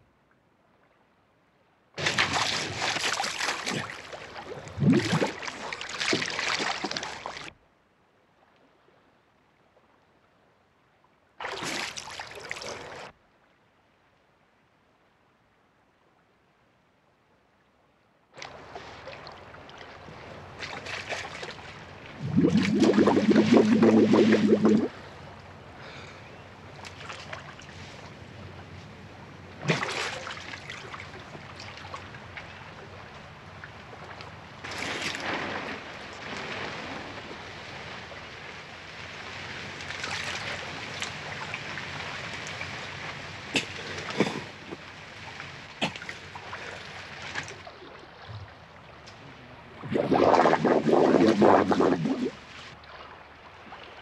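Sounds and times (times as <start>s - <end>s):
water splashing: 2.0s - 7.5s, 11.4s - 13.1s, 18.4s - 25.2s, 29.6s - 32.2s, 34.6s - 54.0s
running water: 18.4s - 25.1s, 37.2s - 54.0s.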